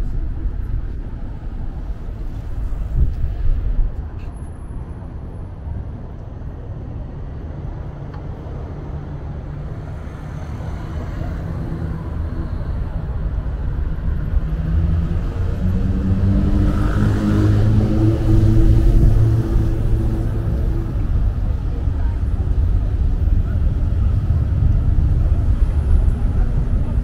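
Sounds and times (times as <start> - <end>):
traffic rumble: 0.0 - 27.0
vehicle engine approaching: 8.3 - 27.0.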